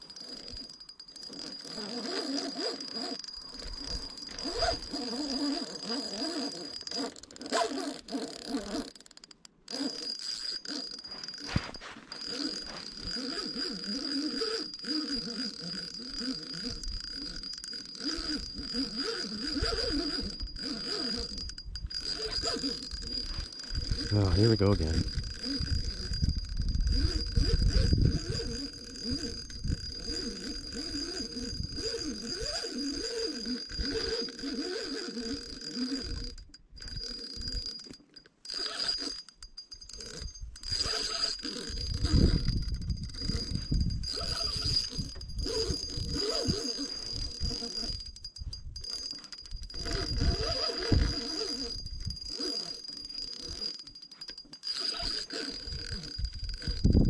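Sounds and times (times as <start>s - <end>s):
fishing reel being cranked: 0.0s - 57.0s
wind rumbling on microphone: 21.6s - 32.5s, 41.7s - 48.8s, 49.6s - 52.3s, 55.7s - 57.0s.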